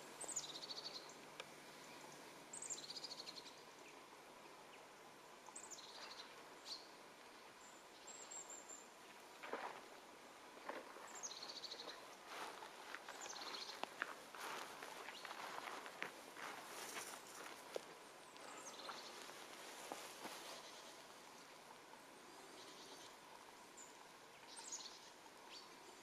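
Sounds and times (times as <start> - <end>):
songbird singing: 0.0 - 26.0
footsteps on forest floor: 10.6 - 21.0.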